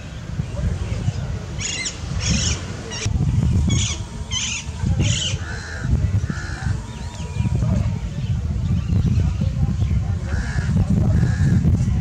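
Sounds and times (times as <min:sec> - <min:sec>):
wind rumble on microphone: 0:00.0 - 0:12.0
bird calling: 0:01.6 - 0:09.0.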